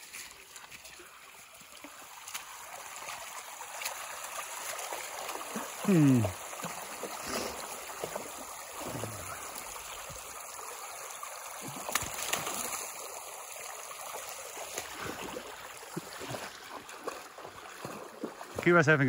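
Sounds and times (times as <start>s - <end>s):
stream rushing over path: 0.0s - 19.0s
dog splashing through water: 11.6s - 13.0s, 14.1s - 18.6s.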